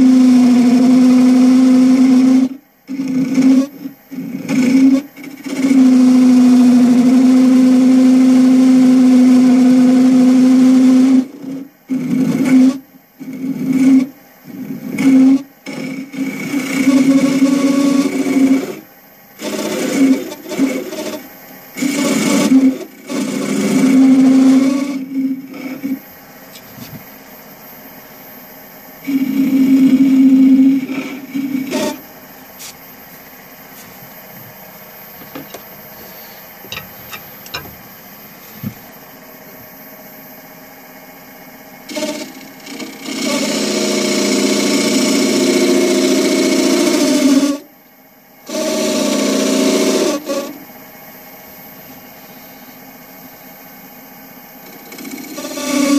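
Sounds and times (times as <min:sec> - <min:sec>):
wood lathe running: 0:00.0 - 0:26.1, 0:29.0 - 0:32.7, 0:41.8 - 0:47.6, 0:48.5 - 0:50.6, 0:54.6 - 0:55.9
turning tool cutting wood: 0:00.0 - 0:27.1, 0:29.0 - 0:32.8, 0:35.2 - 0:37.8, 0:41.8 - 0:47.6, 0:48.5 - 0:50.6, 0:54.6 - 0:55.9.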